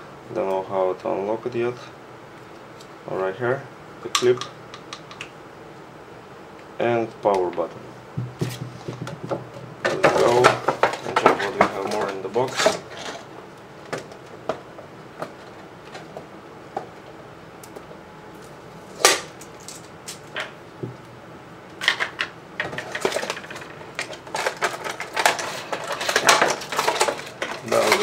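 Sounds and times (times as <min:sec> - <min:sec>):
plastic crinkling and rustling: 0:22.7 - 0:28.0
sharp plastic crackle: 0:22.8 - 0:28.0.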